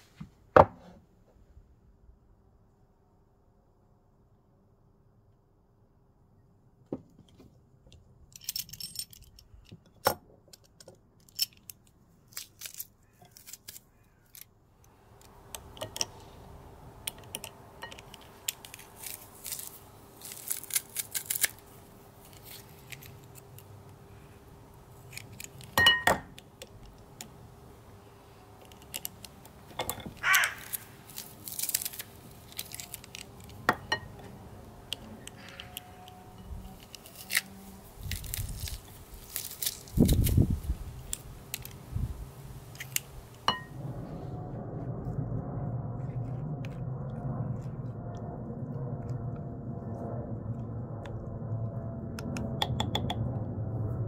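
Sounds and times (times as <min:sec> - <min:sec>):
light clicks of garlic cloves: 0:10.5 - 0:25.8.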